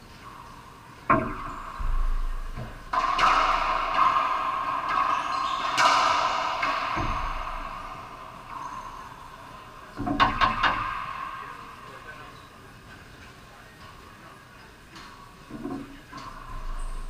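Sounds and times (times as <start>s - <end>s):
ball hitting racquets and walls: 1.1s - 11.6s.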